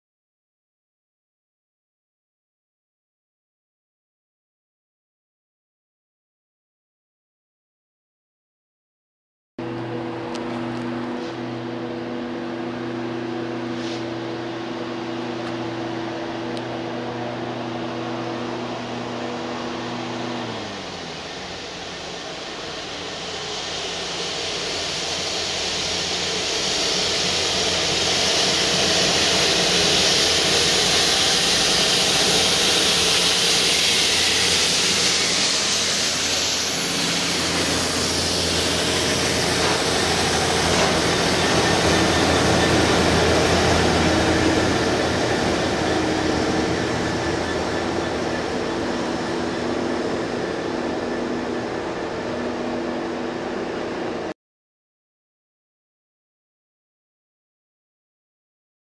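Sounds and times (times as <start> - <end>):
diesel engine drone: 9.6 - 54.3
train passing: 9.6 - 54.3
hiss: 13.6 - 14.2, 20.8 - 51.5.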